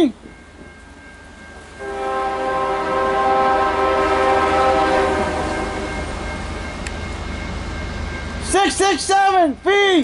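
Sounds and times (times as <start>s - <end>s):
low rumble of locomotives: 0.0s - 10.0s
locomotive air horn blast: 1.8s - 6.1s.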